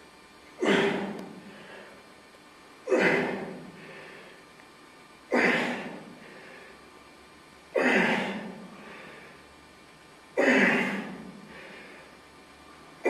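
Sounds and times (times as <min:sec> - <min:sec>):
man exhaling forcefully: 0:00.6 - 0:02.0, 0:02.9 - 0:04.4, 0:05.3 - 0:06.7, 0:07.8 - 0:09.4, 0:10.4 - 0:12.1
faint breath: 0:00.6 - 0:02.1, 0:03.7 - 0:04.5, 0:06.1 - 0:06.9, 0:08.6 - 0:09.5, 0:11.3 - 0:12.2.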